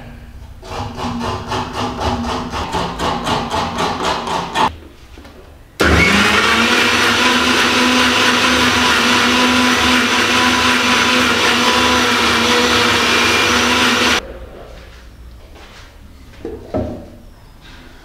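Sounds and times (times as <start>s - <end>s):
mixer grinder running: 5.8s - 14.2s.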